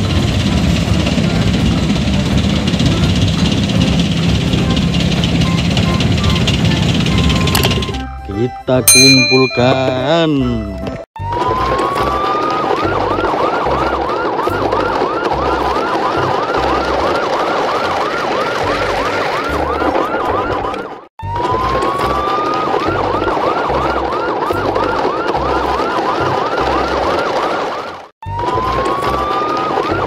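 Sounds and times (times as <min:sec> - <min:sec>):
electronic siren wailing and yelping: 0:11.2 - 0:30.0.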